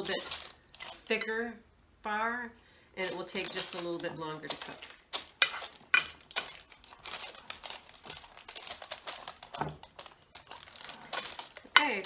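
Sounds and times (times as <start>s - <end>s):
paper crinkling and rustling: 0.0s - 1.1s, 3.0s - 12.0s.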